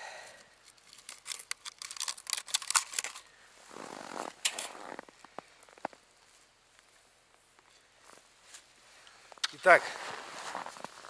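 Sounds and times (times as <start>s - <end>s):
plastic packet crinkling: 0.8s - 3.3s.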